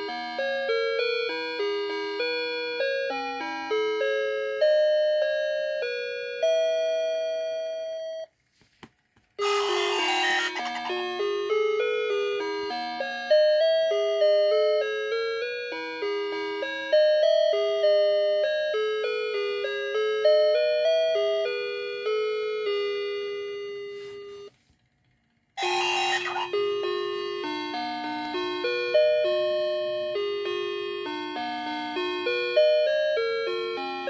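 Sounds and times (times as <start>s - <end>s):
tinny electronic christmas tune: 9.4s - 13.2s, 25.6s - 28.2s.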